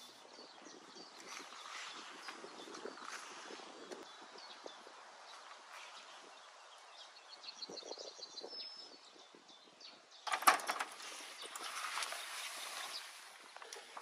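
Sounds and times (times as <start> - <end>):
faint bird chirps: 0.0 - 10.4.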